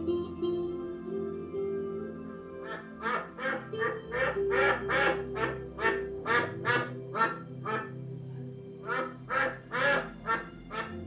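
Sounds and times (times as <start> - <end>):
soft background music: 0.0 - 11.0
recorded bird calls: 2.6 - 11.0.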